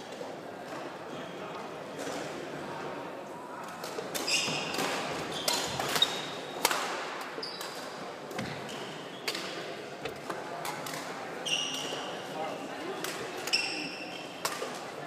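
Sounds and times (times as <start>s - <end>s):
rackets hitting shuttlecock: 3.8s - 12.2s, 13.0s - 15.0s.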